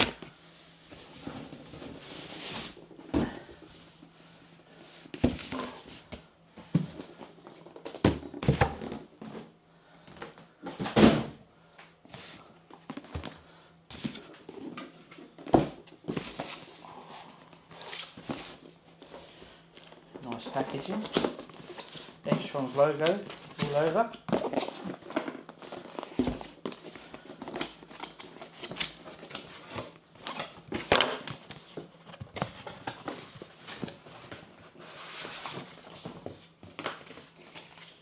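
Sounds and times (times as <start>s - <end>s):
cardboard rustling and sliding: 0.5s - 7.3s, 31.4s - 36.5s.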